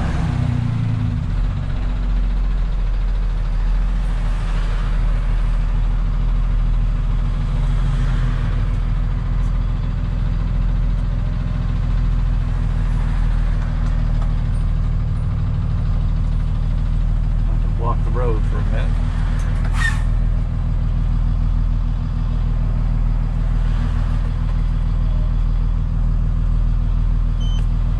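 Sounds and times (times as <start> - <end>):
road noise inside cab: 0.0 - 27.9
truck engine drone: 0.0 - 27.9.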